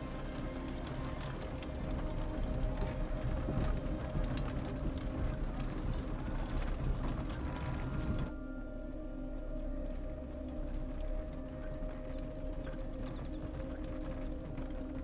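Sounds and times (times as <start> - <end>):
low steady drone: 0.0 - 15.0.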